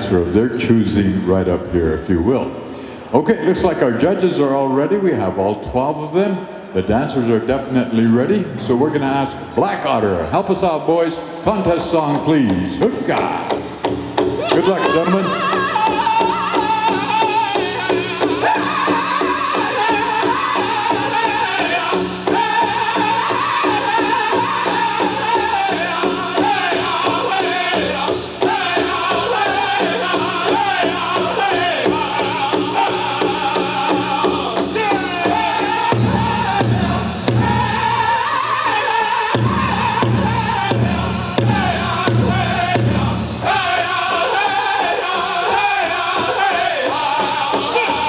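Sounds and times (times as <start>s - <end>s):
dancers' bells jingling: 0.0s - 4.9s, 6.6s - 48.0s
drum group singing: 12.4s - 48.0s
big drum steady beat: 12.5s - 48.0s.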